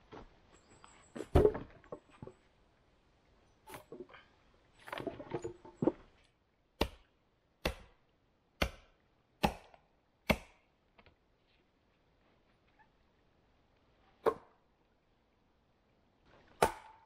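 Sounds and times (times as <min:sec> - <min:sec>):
wooden logs clattering: 0:01.1 - 0:02.5, 0:03.7 - 0:06.3
axe chopping wood: 0:06.8 - 0:08.0, 0:08.6 - 0:10.7, 0:16.6 - 0:17.0.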